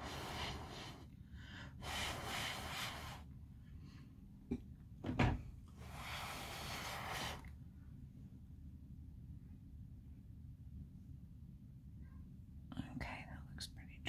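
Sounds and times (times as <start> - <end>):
soft breathy hiss: 0.0 - 4.0, 5.7 - 7.6.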